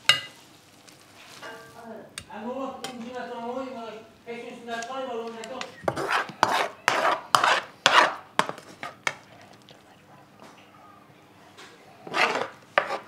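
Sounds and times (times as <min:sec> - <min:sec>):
utensil scraping a pot: 0:05.6 - 0:09.2, 0:12.0 - 0:13.0.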